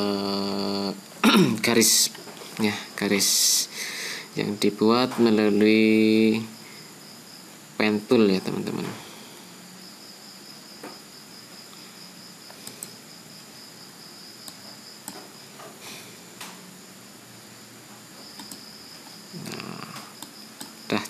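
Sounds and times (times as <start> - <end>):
faint mouse clicks: 12.5 - 13.0, 14.4 - 15.2, 18.3 - 18.6, 19.9 - 20.8.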